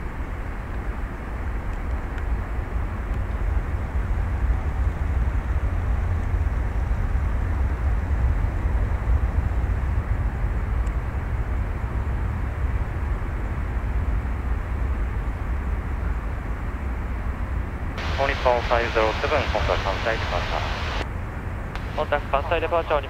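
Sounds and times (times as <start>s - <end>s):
jet engines rumbling: 0.0s - 23.0s.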